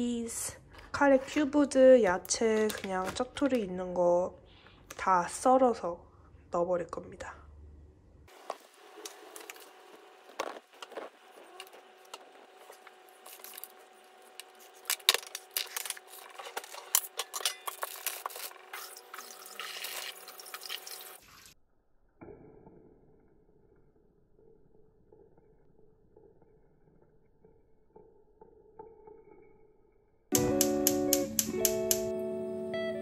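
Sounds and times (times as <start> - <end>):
plastic bag rustling: 8.3 - 21.0.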